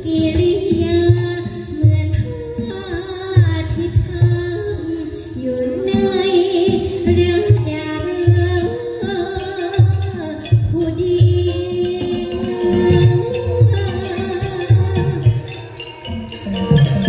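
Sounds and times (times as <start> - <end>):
person singing into a microphone: 0.0 - 15.9
band with low drumbeat: 0.0 - 17.0.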